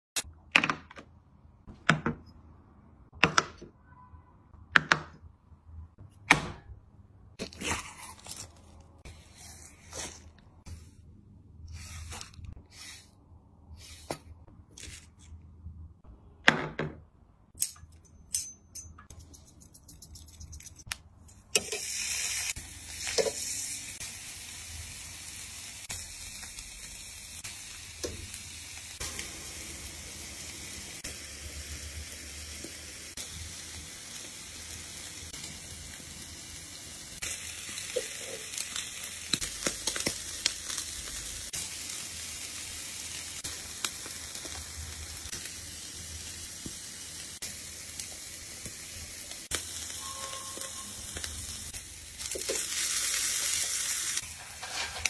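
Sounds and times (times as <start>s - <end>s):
meat sizzling on a grill: 21.6s - 55.0s.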